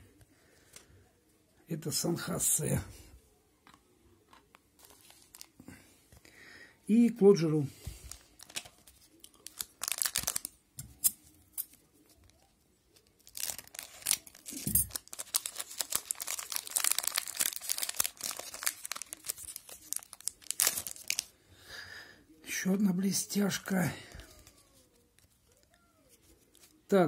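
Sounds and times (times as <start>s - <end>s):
foil wrapper crinkling and tearing: 4.8s - 5.6s, 8.1s - 21.4s.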